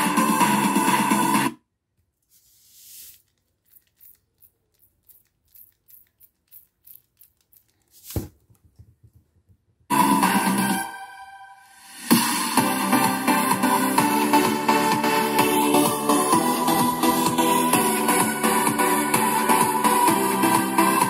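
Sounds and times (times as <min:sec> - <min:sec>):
electronic music from speaker: 0:00.0 - 0:01.6, 0:09.9 - 0:21.0
grains ticking: 0:03.4 - 0:07.9.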